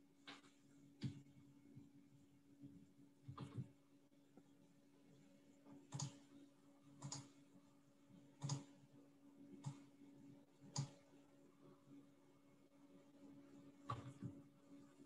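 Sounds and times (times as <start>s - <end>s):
low steady hum: 0.0s - 15.0s
computer mouse clicking: 3.2s - 3.8s, 5.9s - 6.3s, 6.9s - 7.4s, 8.4s - 8.8s, 9.5s - 9.9s, 10.6s - 11.0s, 13.8s - 14.4s.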